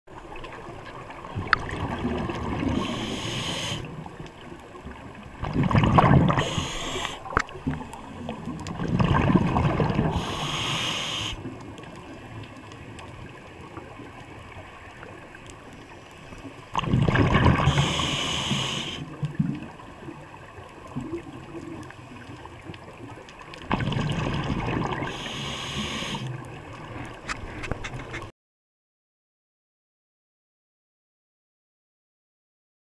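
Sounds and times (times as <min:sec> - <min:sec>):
low underwater rush: 0:00.1 - 0:27.7
gurgling rush of bubbles: 0:00.2 - 0:15.4, 0:16.6 - 0:27.6
regulator hiss on inhale: 0:02.7 - 0:03.9, 0:06.3 - 0:07.4, 0:10.1 - 0:11.5, 0:17.6 - 0:19.2, 0:25.1 - 0:26.4.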